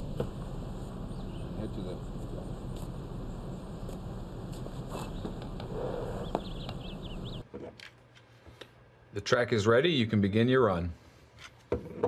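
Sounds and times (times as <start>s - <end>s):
low outdoor rumble: 0.0s - 7.4s.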